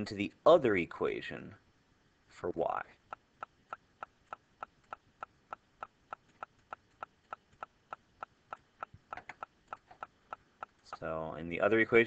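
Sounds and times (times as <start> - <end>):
faint steady ticking: 2.8 - 11.4.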